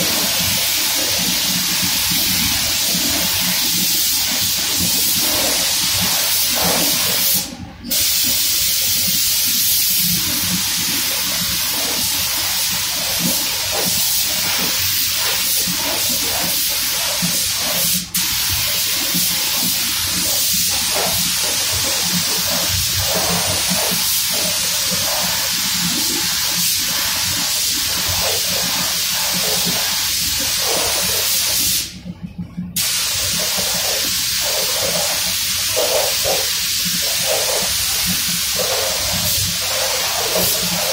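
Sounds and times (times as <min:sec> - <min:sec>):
spray gun hissing: 0:00.0 - 0:31.9, 0:32.8 - 0:40.9.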